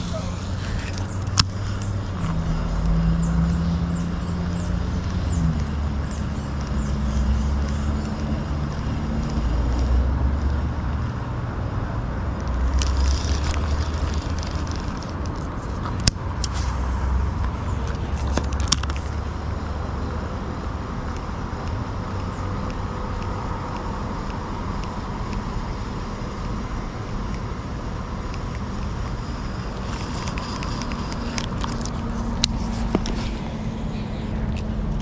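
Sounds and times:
vehicle engine rumble: 0:00.0 - 0:35.0
sharp clicks: 0:00.6 - 0:11.2, 0:21.0 - 0:25.9.

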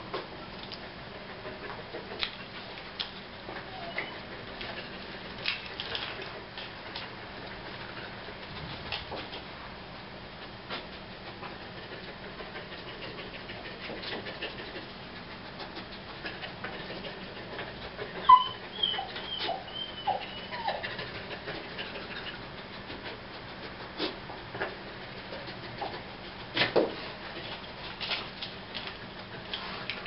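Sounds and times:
dog whining and whimpering: 0:03.6 - 0:04.3, 0:18.1 - 0:21.0.

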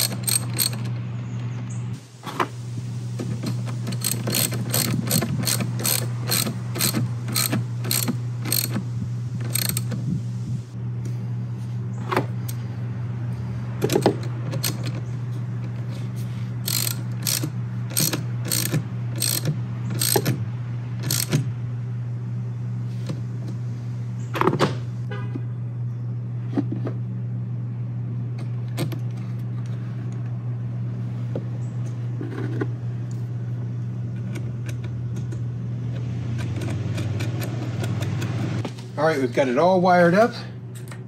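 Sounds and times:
ratchet wrench clicking: 0:00.0 - 0:00.9, 0:03.4 - 0:08.8, 0:09.4 - 0:10.0, 0:16.6 - 0:20.4, 0:21.0 - 0:21.4
steady low hum: 0:00.0 - 0:41.0.

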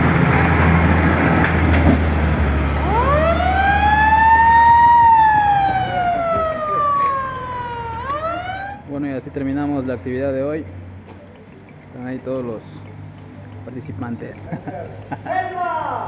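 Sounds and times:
fire engine running: 0:00.0 - 0:11.8
siren wailing: 0:02.6 - 0:09.0.

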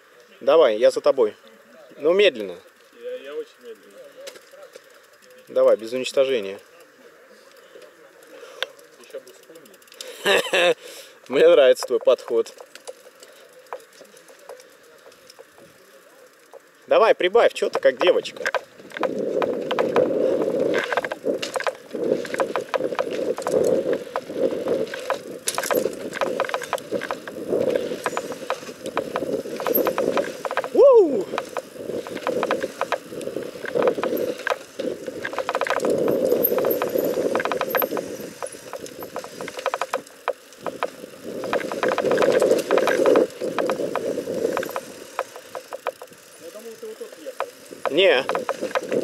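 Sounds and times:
bike rattling and clicking: 0:02.0 - 0:49.0
bike tyres rumbling on dirt: 0:11.3 - 0:49.0.

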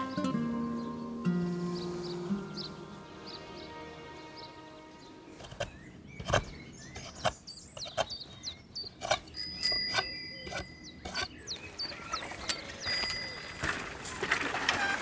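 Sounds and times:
birds chirping: 0:00.0 - 0:15.0
bicycle bell ringing: 0:09.4 - 0:10.8, 0:12.6 - 0:13.9.

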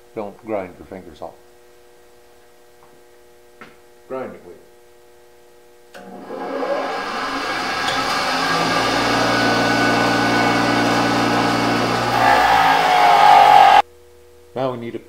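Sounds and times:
bench grinder motor humming: 0:06.0 - 0:13.8.

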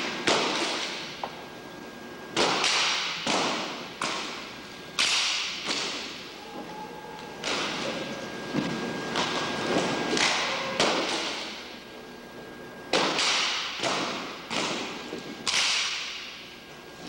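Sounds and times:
rifles slapped with echo: 0:00.0 - 0:01.2, 0:02.3 - 0:06.2, 0:10.1 - 0:11.6, 0:12.9 - 0:16.4.

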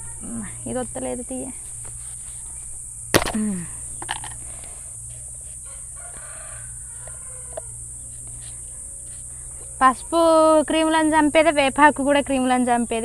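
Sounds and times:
high insect drone: 0:00.0 - 0:13.0
sharp knock: 0:03.2 - 0:03.5
faint chicken calls: 0:04.4 - 0:09.8.

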